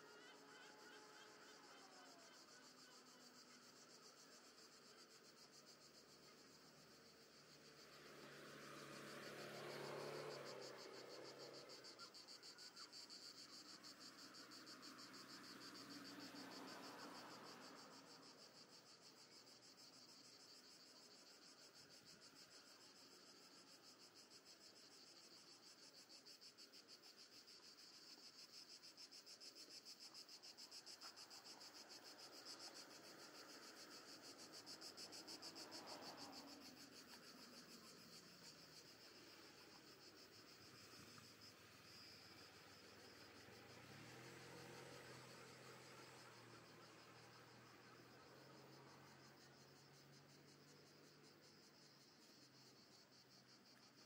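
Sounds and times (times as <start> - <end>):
cicadas chirring: 0.0 - 54.0
cars passing: 7.6 - 11.9, 32.8 - 37.3, 40.8 - 49.3.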